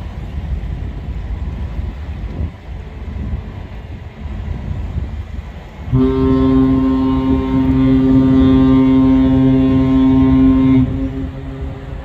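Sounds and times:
ship horn blast: 0:05.8 - 0:12.0
faint horn echo: 0:05.9 - 0:12.0.

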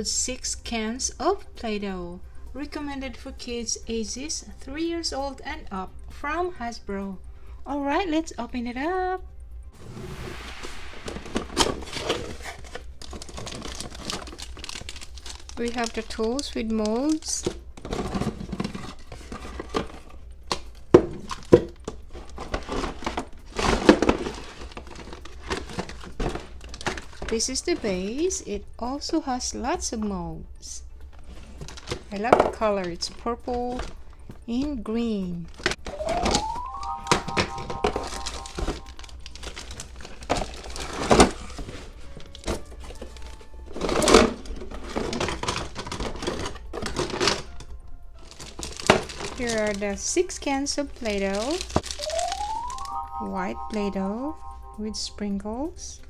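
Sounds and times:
cardboard box shifting: 0:11.0 - 0:14.4
plastic bags crinkling: 0:11.2 - 0:27.8, 0:31.2 - 0:32.2, 0:37.9 - 0:47.6, 0:48.2 - 0:53.0.

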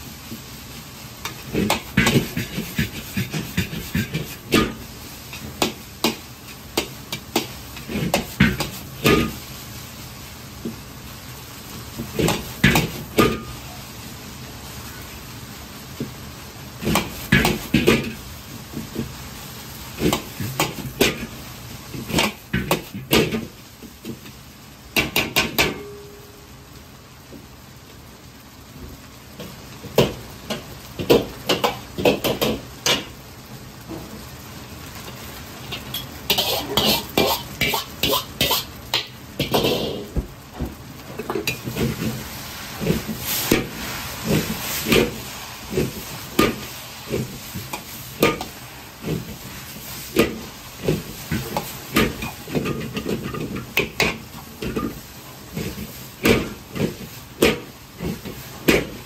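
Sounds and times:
frying sizzle: 0:00.0 - 0:59.0
metal ladle scraping a wok: 0:01.2 - 0:09.4, 0:35.6 - 0:40.1, 0:41.2 - 0:59.0.

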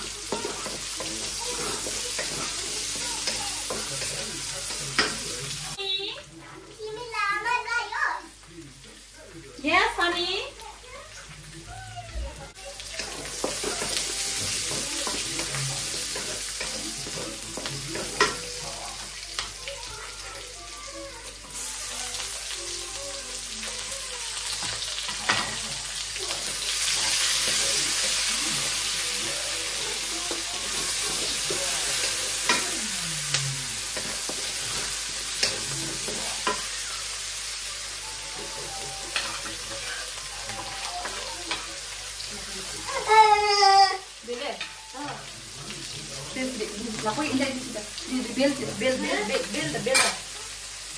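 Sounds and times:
food sizzling in a wok: 0:00.0 - 0:50.9
spatula scraping a pan: 0:00.2 - 0:05.3.

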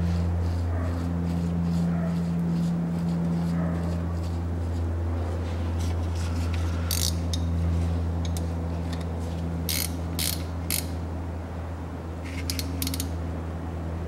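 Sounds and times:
steady low hum: 0:00.0 - 0:14.0
wrench clinking against bolt: 0:12.4 - 0:13.1.

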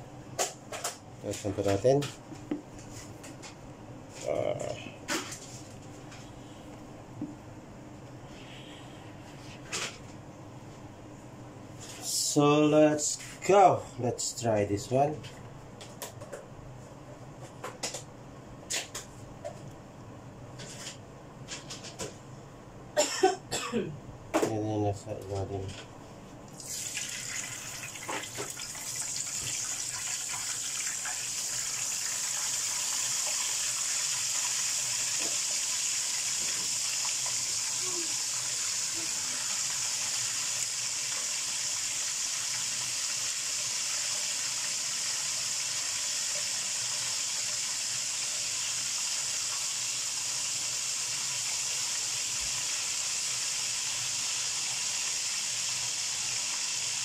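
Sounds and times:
fish sizzling in hot oil: 0:26.6 - 0:57.0.

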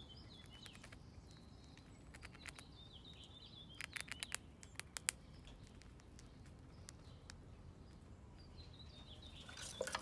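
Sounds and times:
bird chirping: 0:00.0 - 0:10.0
squirrel crunching corn kernels: 0:00.0 - 0:10.0
claws scrabbling on wood: 0:09.3 - 0:10.0.

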